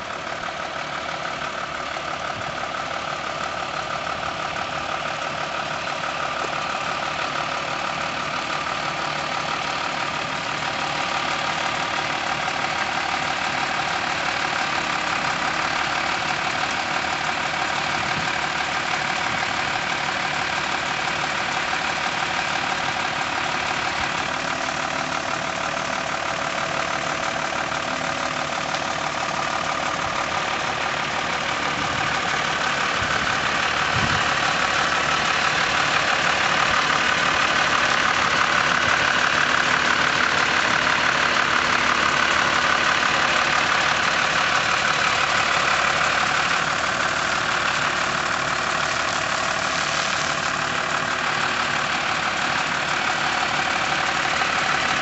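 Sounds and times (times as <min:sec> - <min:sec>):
lorry diesel engine running: 0:00.0 - 0:55.0.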